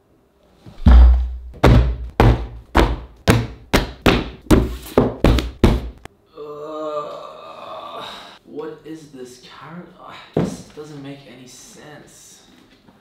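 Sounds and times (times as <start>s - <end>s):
books thudding on wooden table: 0.8s - 6.0s.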